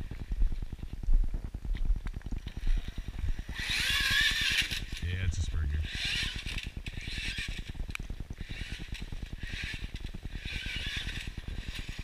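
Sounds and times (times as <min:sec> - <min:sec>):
high electric motor whine: 0:00.0 - 0:12.0
toy truck drivetrain clicking: 0:03.5 - 0:05.1, 0:05.9 - 0:12.0.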